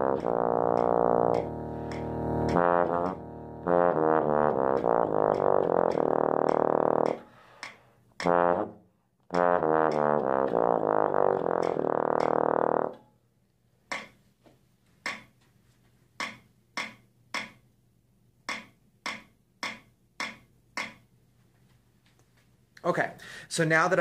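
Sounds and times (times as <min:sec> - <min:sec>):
bass trombone playing scale runs: 0:00.0 - 0:07.3, 0:08.2 - 0:13.0.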